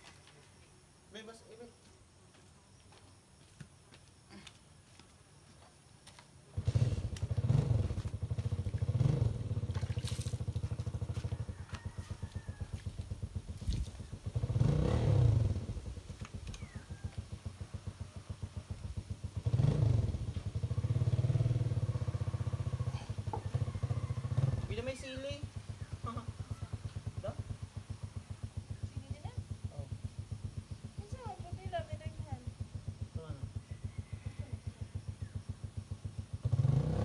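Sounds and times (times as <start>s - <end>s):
small engine revving: 6.5s - 37.0s.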